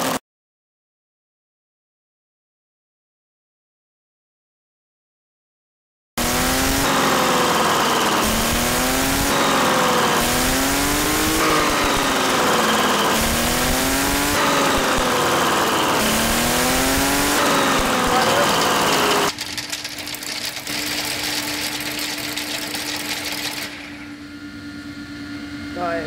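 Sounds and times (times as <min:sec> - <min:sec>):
model engine revving: 0:06.2 - 0:24.2.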